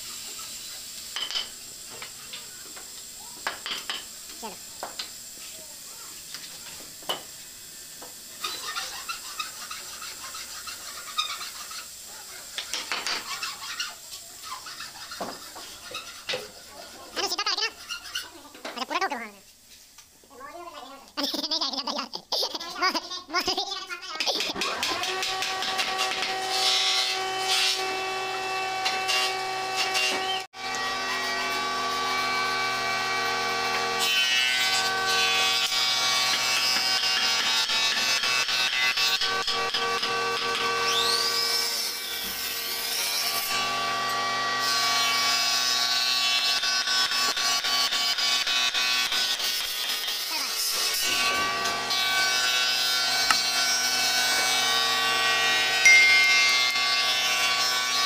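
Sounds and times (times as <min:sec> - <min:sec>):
hand tool scraping on wood: 0:08.5 - 0:11.8.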